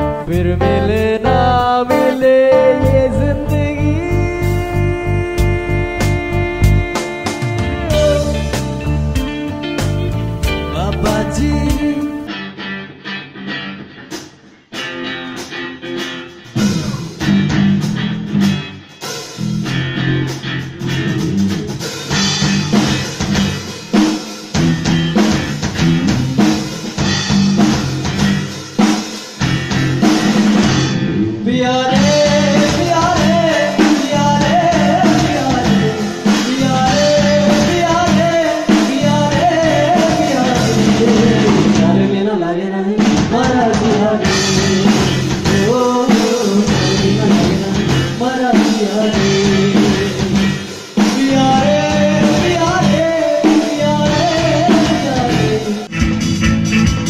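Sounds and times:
high bending melody line: 0.0s - 12.3s
rock band playing: 0.0s - 42.3s, 43.0s - 57.0s.

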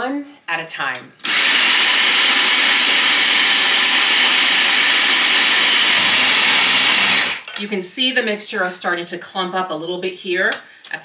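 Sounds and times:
food processor running: 1.2s - 7.5s.

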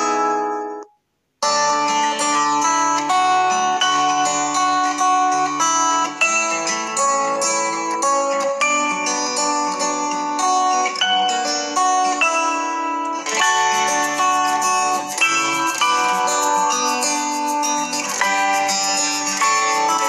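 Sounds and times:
plucked string music: 0.0s - 20.0s.

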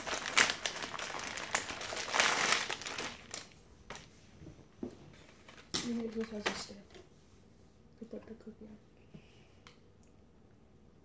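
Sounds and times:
plastic package rustling: 0.0s - 4.1s, 5.1s - 7.0s.

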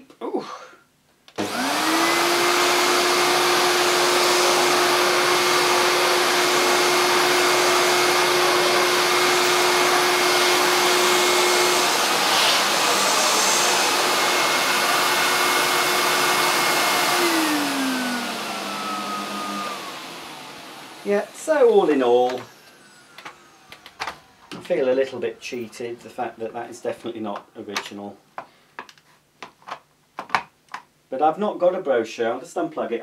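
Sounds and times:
vacuum motor winding down: 1.4s - 24.6s
vacuum cleaner running: 1.4s - 25.3s.

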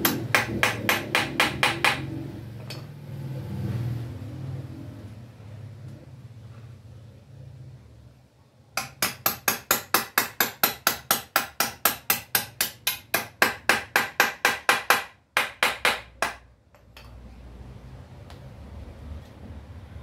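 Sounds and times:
hammer striking wood: 0.0s - 2.1s, 8.8s - 16.5s.

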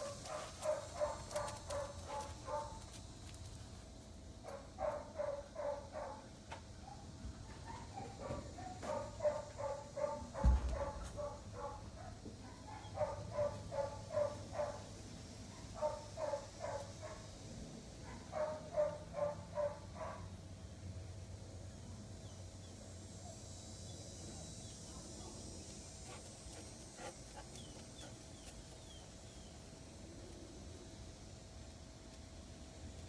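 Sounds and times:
dog barking high-pitched: 0.1s - 2.8s, 4.5s - 6.2s, 7.7s - 14.8s, 18.1s - 20.2s
low thump: 10.4s - 10.9s.

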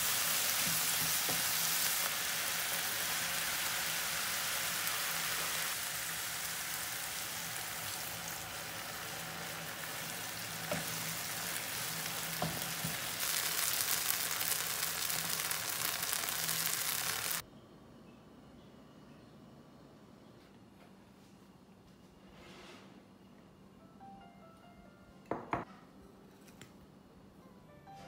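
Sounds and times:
mushrooms sizzling in oil: 0.0s - 17.4s.

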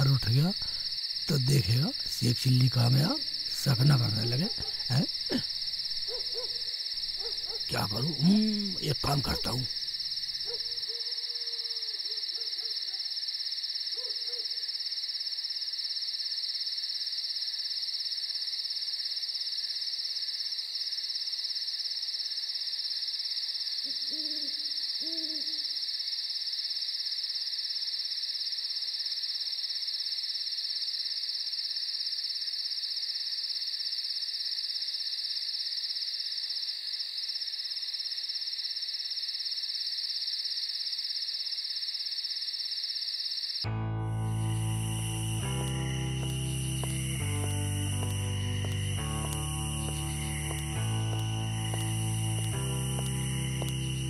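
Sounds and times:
crickets chirping: 0.0s - 54.0s
owl hooting: 23.8s - 25.8s.

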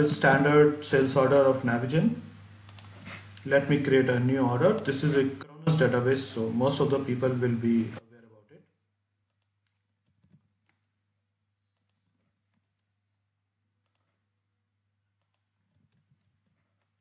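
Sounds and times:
computer mouse clicks: 2.6s - 3.5s, 4.6s - 4.9s, 9.3s - 11.0s, 11.6s - 13.0s, 13.8s - 14.2s, 15.2s - 17.0s
keyboard keystrokes: 9.3s - 10.9s.

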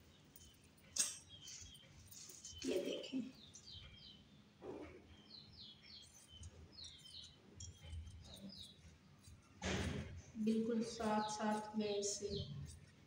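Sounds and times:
small birds chirping: 0.0s - 13.0s
scissors cutting fabric: 6.0s - 13.0s.

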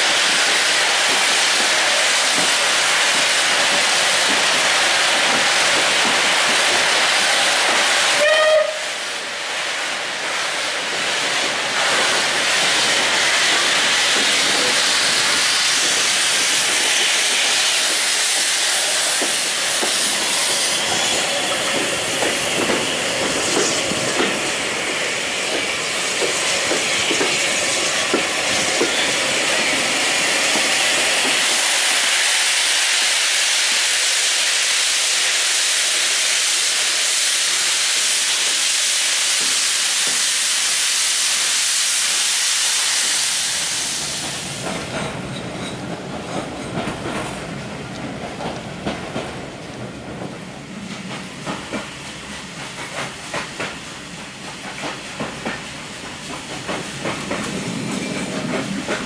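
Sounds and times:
rushing hiss of steam: 0.0s - 59.0s.

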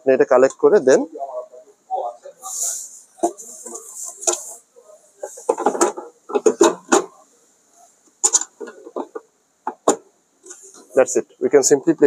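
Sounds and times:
hollow plastic knocks and clatter: 5.4s - 7.2s, 8.2s - 10.1s.

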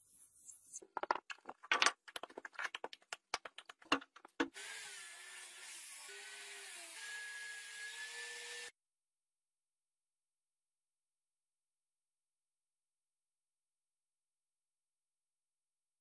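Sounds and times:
sharp clicks and taps: 0.8s - 4.5s.

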